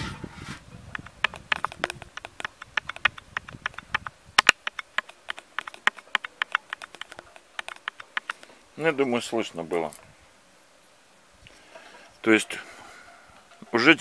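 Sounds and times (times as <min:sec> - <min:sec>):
fingertip tapping on stethoscope: 0:00.9 - 0:08.5.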